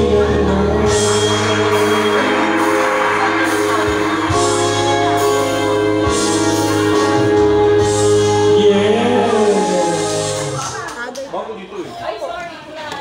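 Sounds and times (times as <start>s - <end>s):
person singing into microphone: 0.0s - 3.0s, 7.3s - 10.7s
loud song over sound system: 0.0s - 11.0s.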